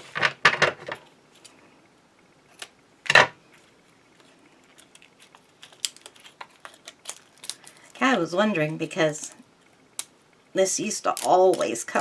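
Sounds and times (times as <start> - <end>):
plastic wrapping rustling: 3.5 - 9.3.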